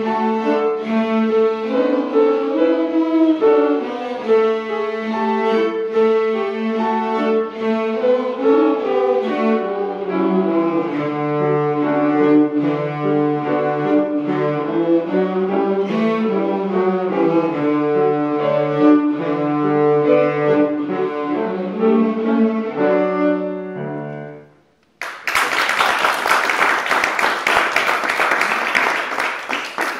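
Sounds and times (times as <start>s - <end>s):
cellos playing bowed notes: 0.0s - 24.4s
piano accompaniment: 0.0s - 29.9s
audience applause: 25.0s - 29.9s.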